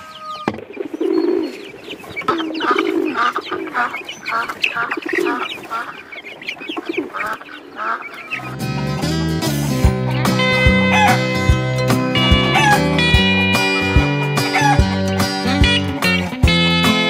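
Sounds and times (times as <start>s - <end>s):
poultry clucking and squawking: 0.0s - 15.9s.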